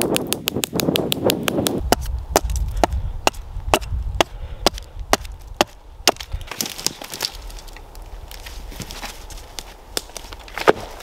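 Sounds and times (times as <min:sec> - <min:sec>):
axe chopping wood: 0:00.0 - 0:07.4, 0:10.0 - 0:11.0.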